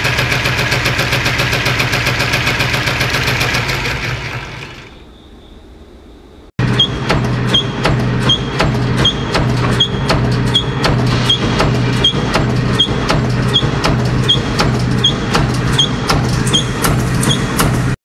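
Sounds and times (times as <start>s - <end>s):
steady machine hum: 0.0s - 18.0s
punch press metallic strikes: 6.6s - 18.0s.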